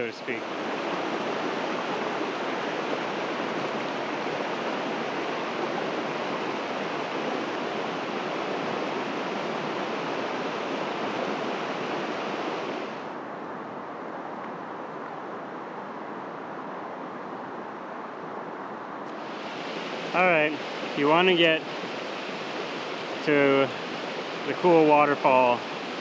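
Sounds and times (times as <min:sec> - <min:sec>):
fast river rushing: 0:00.0 - 0:26.0.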